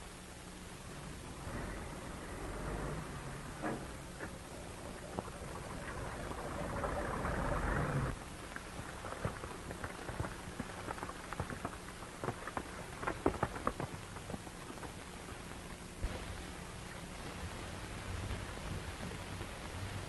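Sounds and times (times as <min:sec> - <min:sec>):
low hum: 0:00.0 - 0:20.0
car engine pulling away: 0:01.0 - 0:08.2
irregular clicks and crackle: 0:03.6 - 0:20.0.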